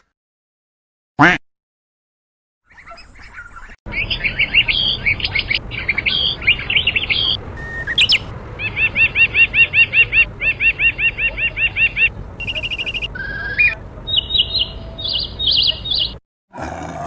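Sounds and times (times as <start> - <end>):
bird calls: 2.6 - 16.2.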